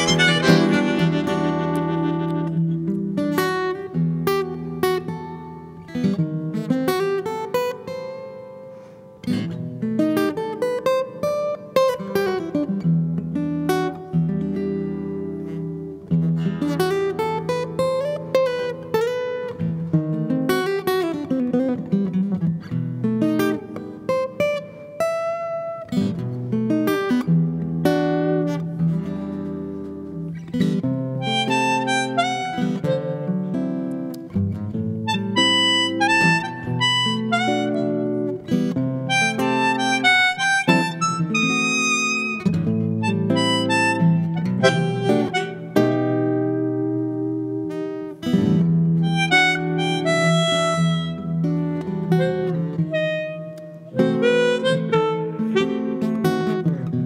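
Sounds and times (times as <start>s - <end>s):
acoustic guitar solo: 0.0s - 57.0s.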